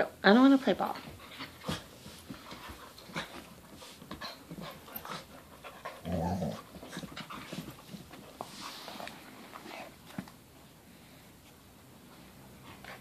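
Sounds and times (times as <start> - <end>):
paws and bodies scuffling: 0.9 - 10.6
dogs panting: 1.0 - 10.1
dog growling: 5.9 - 7.1.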